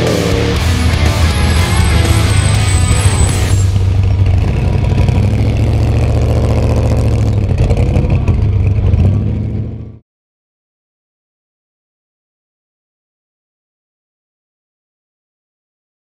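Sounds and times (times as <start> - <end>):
truck engine rumbling: 0.0 - 10.0.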